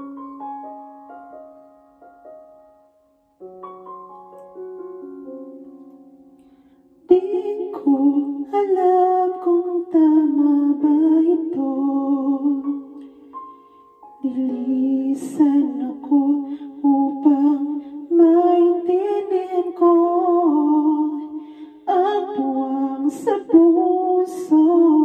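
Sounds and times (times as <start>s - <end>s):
karaoke piano backing track: 0.0s - 25.0s
woman singing with echo: 7.1s - 13.0s, 14.2s - 25.0s.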